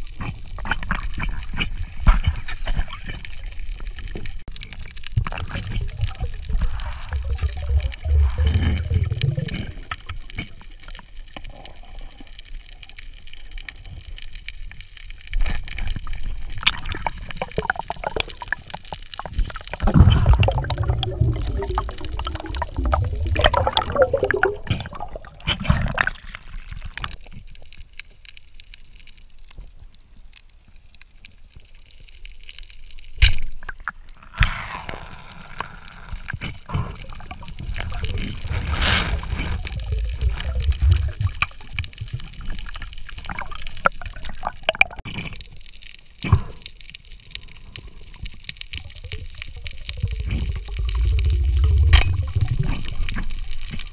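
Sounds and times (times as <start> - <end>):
underwater gurgling and bubbling: 0.0 - 28.0, 33.6 - 53.9.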